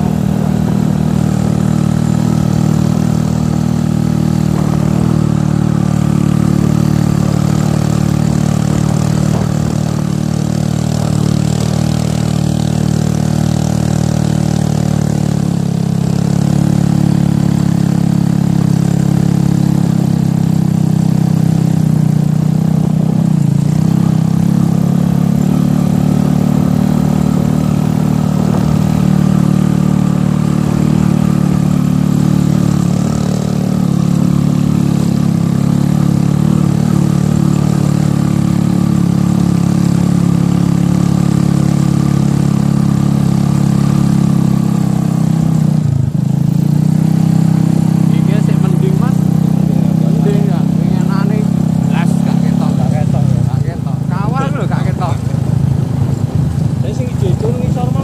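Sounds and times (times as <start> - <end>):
engine running steadily: 0.0 - 58.0.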